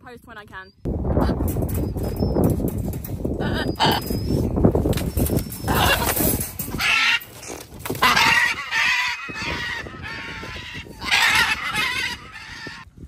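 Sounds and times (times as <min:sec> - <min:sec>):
macaws screeching: 0:03.4 - 0:04.5, 0:05.2 - 0:07.4, 0:08.0 - 0:12.9.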